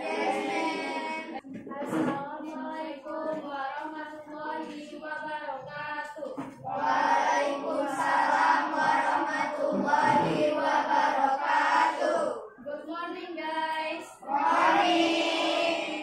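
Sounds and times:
children chanting in unison: 0.0s - 1.4s, 6.6s - 12.5s, 14.0s - 16.0s
girl chanting: 9.4s - 10.8s.

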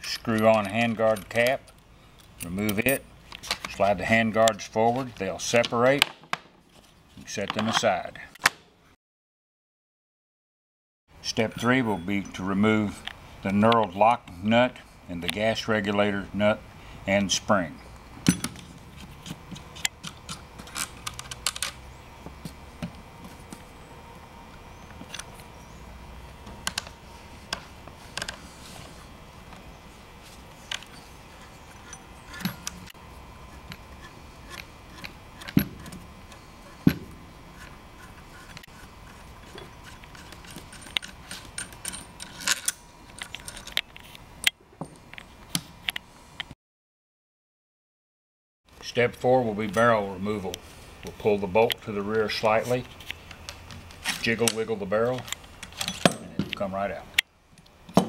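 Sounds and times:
small metal parts clicking: 39.4s - 44.0s.

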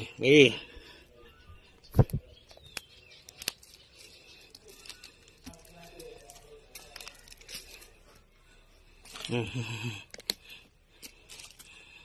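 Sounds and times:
rotten wood crumbling: 2.6s - 8.1s.

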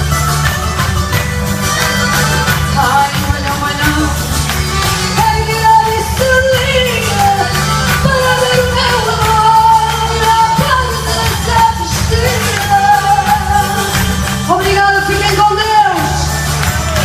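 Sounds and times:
amplified music with bass line: 0.0s - 17.0s
woman singing into a microphone: 2.6s - 4.4s, 5.0s - 16.9s.

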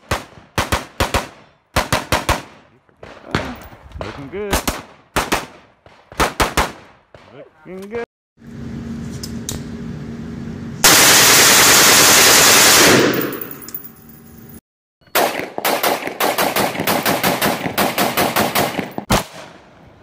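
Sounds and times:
rapid rifle gunfire: 0.0s - 3.6s, 4.5s - 7.3s, 10.9s - 13.4s, 15.2s - 19.4s
sharp rifle shots: 0.0s - 3.6s, 4.4s - 7.3s, 10.8s - 13.6s, 15.1s - 19.6s.

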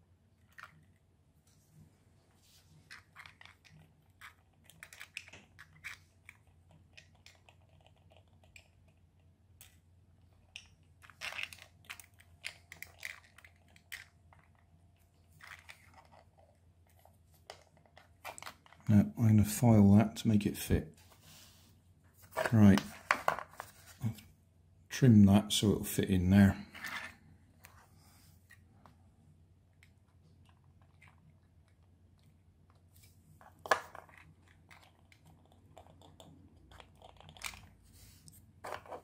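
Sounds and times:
plastic puzzle parts clicking: 2.9s - 9.8s, 10.4s - 14.6s.

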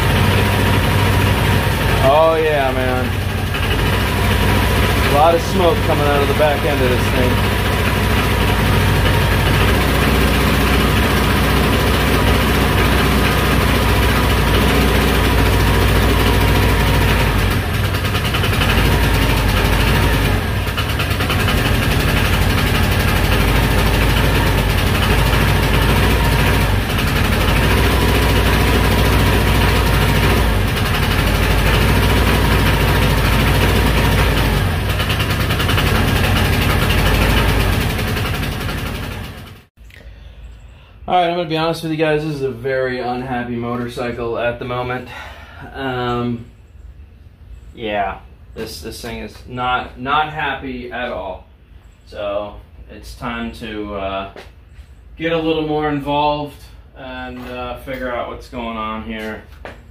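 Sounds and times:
scooter engine at full throttle: 0.0s - 39.7s.

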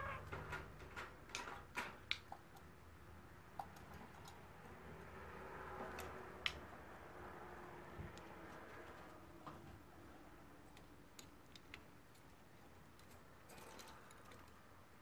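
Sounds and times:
bird clicking and tapping in cage: 0.2s - 2.7s, 3.5s - 5.2s.

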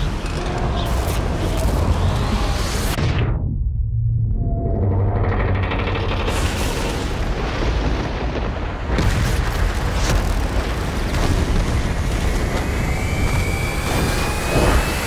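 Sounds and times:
dense continuous roar: 0.0s - 15.0s
heavy booms and explosions: 6.1s - 15.0s.

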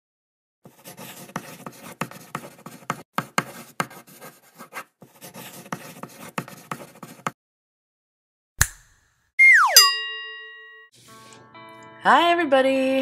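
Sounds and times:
pen scratching on paper: 0.6s - 7.4s.

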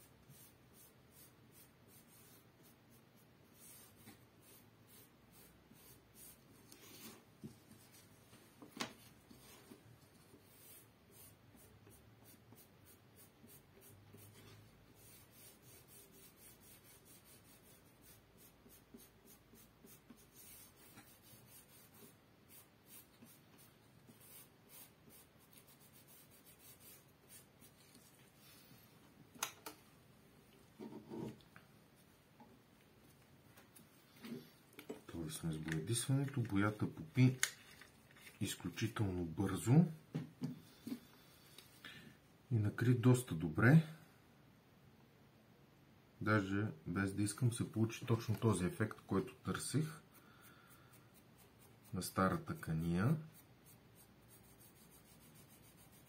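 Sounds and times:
dauber scratching on leather: 51.2s - 56.0s.

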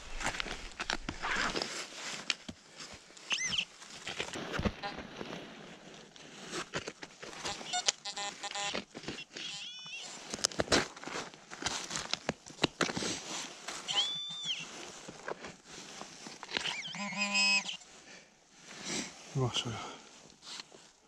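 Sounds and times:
rustling and scraping in leaves: 0.0s - 21.0s
metal detector beeps: 3.3s - 3.7s, 7.4s - 10.2s, 13.8s - 14.7s, 16.6s - 17.8s.

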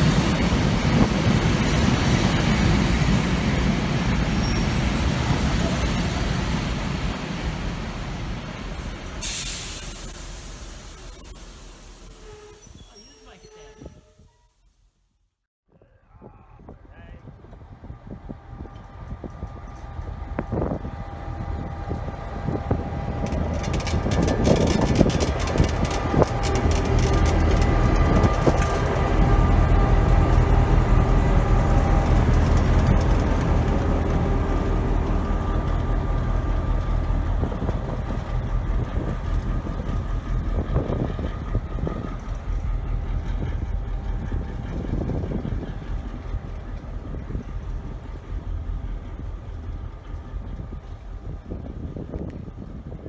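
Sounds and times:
locomotive engine rumble: 15.8s - 53.0s
sharp clicks and clanks: 23.2s - 29.1s.

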